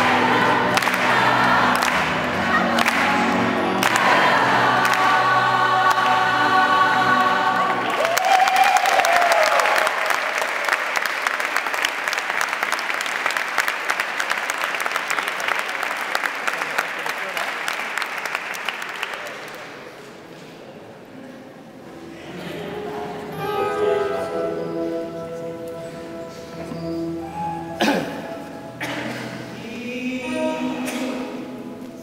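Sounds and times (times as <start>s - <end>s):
applause: 0.0s - 5.1s, 7.7s - 20.1s
gospel choir singing chord: 0.0s - 8.2s, 22.0s - 32.0s
person cheering: 7.9s - 10.0s.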